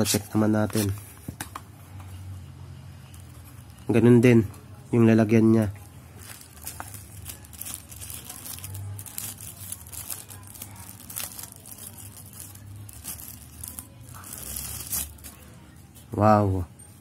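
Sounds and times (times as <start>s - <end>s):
plastic bag crinkling: 3.1s - 4.1s, 5.6s - 15.4s.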